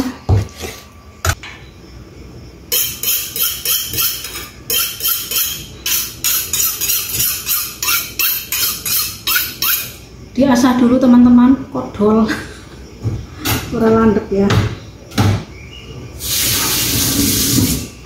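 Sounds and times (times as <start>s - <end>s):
knife rasping through sharpener: 2.7s - 10.0s.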